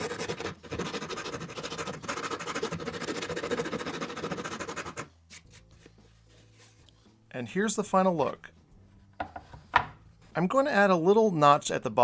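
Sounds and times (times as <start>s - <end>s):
wood file scraping board: 0.0s - 5.1s.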